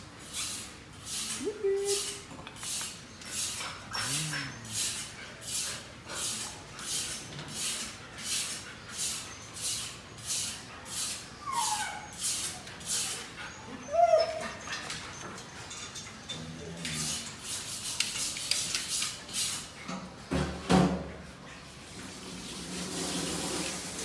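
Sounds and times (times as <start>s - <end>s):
puppies whining: 3.0s - 5.1s, 11.2s - 17.0s
puppy yipping: 11.4s - 12.7s, 13.6s - 14.7s.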